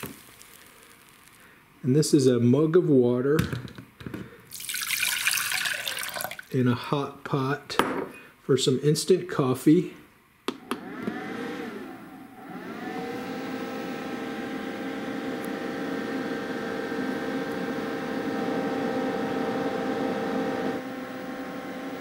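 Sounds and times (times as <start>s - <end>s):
cooling fan whirring: 10.5s - 22.0s.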